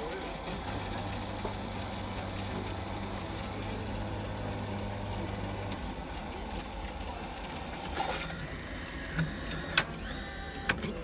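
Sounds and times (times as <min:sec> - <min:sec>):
coffee machine pump humming: 0:00.0 - 0:11.0.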